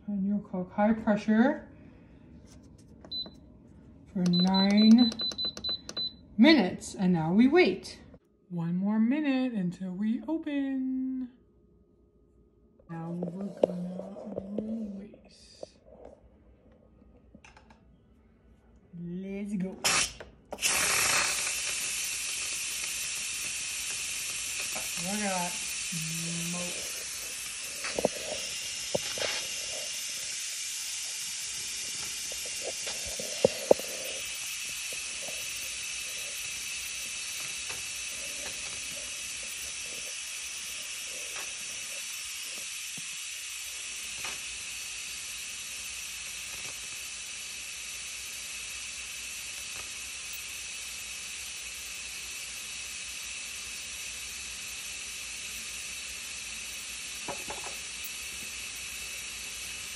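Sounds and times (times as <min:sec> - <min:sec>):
pressure cooker steam hissing: 0:04.2 - 0:06.1, 0:19.8 - 0:59.9
sharp clicks: 0:04.3 - 0:06.1.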